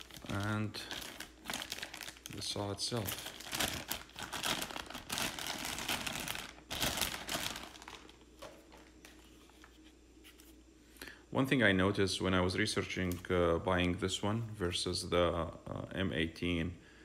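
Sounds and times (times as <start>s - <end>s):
plastic bag crinkling: 0.0s - 9.7s.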